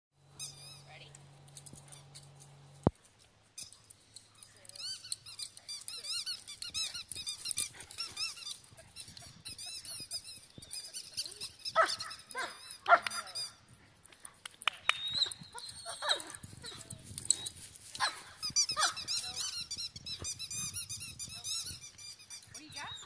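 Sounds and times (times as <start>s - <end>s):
rubber squeaky toy squeaking: 0.4s - 1.0s, 4.8s - 13.6s, 18.4s - 23.0s.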